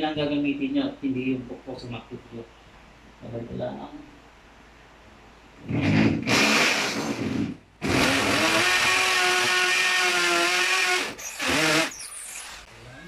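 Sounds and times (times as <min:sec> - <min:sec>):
electric drill boring: 0:06.2 - 0:12.7.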